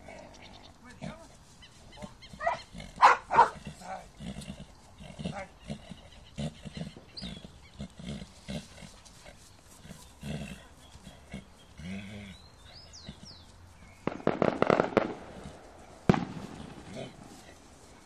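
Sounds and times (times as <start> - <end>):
horse grunting: 0.0 - 1.4, 2.0 - 13.4, 16.6 - 17.6.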